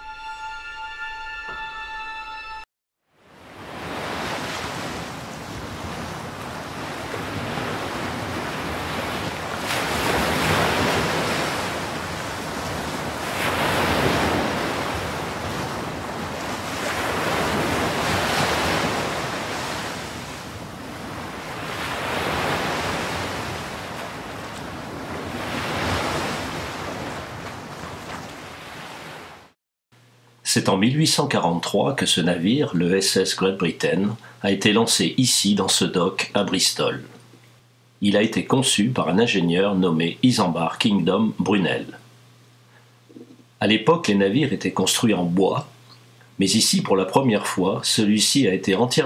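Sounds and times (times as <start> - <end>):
wind: 3.1 - 30.4
waves rushing: 3.2 - 29.6.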